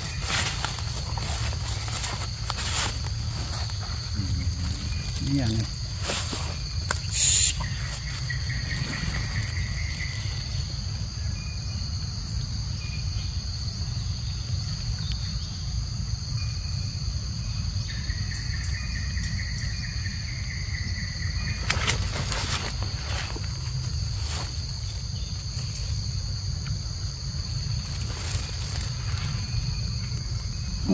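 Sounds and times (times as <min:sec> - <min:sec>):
low rumble: 0:00.0 - 0:07.0, 0:07.8 - 0:12.3
high-pitched insect drone: 0:00.0 - 0:30.9
faint drawn-out call-like tones: 0:06.9 - 0:10.7.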